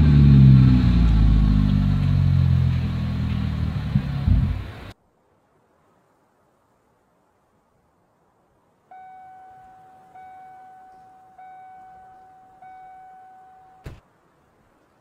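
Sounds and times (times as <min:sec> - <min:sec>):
car door warning chime: 0:08.9 - 0:14.0
car door slamming: 0:13.8 - 0:14.0.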